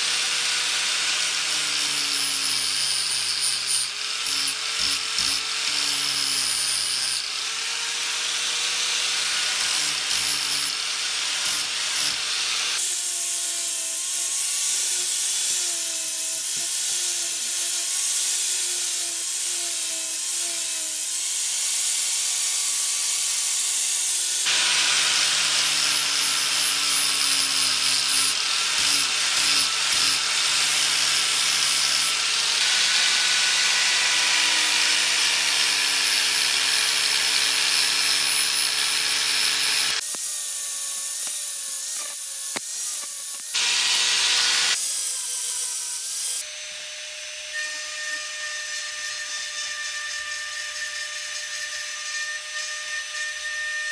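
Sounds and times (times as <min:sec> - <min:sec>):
angle grinder grinding steel: 0:00.0 - 0:53.9.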